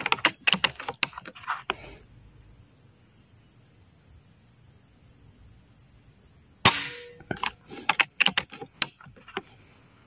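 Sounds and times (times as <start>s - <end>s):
quick clicks and clacks: 0.0s - 1.4s, 7.4s - 9.4s
air rifle shot: 6.6s - 7.2s.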